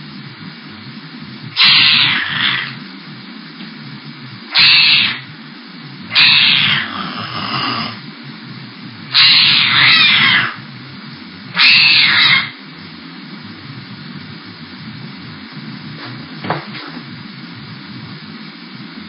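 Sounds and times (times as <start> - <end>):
microphone hiss: 0.0 - 19.0
cat yowling: 1.6 - 2.8, 4.5 - 5.2, 6.1 - 8.0, 9.1 - 10.6, 11.5 - 12.6.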